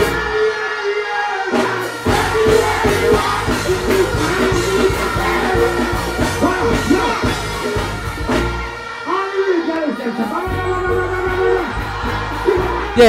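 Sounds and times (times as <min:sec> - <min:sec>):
man singing into a microphone: 0:02.1 - 0:07.3
heavy bass dancehall beat: 0:02.1 - 0:08.6.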